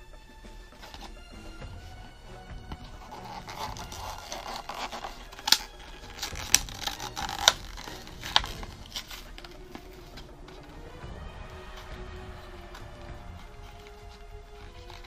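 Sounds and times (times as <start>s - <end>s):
plastic blister crinkling: 2.6s - 10.9s, 12.6s - 15.0s
sharp plastic cracks: 2.8s - 10.2s.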